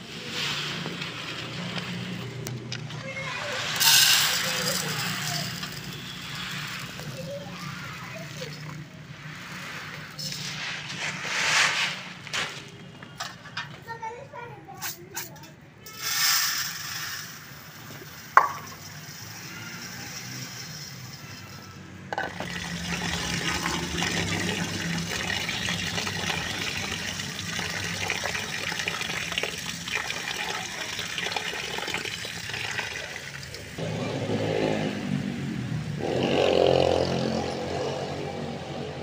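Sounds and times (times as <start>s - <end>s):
water splashing while washing rice: 22.3s - 33.8s.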